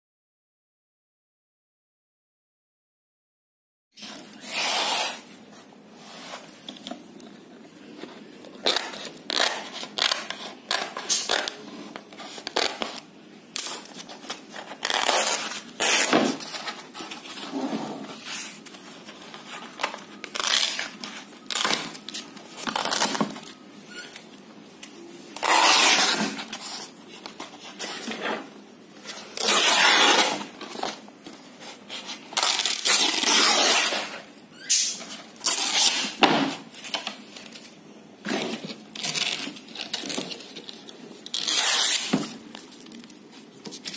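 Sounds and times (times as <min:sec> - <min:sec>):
canvas ripping by hand: 0:25.4 - 0:26.4, 0:29.4 - 0:30.5, 0:32.4 - 0:34.2, 0:41.3 - 0:42.2.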